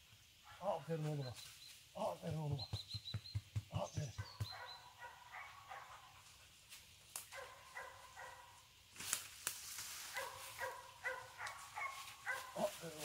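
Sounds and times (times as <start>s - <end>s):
dog yelping barks: 4.4s - 6.1s, 7.3s - 8.5s, 10.1s - 12.6s.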